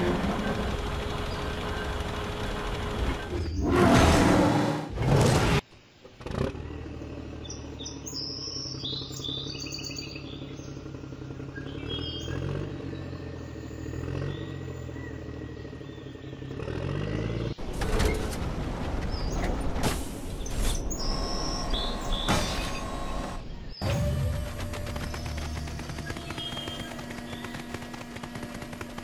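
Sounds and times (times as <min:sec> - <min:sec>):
low engine-like drone: 0:00.0 - 0:04.9, 0:06.1 - 0:17.6, 0:20.8 - 0:29.0.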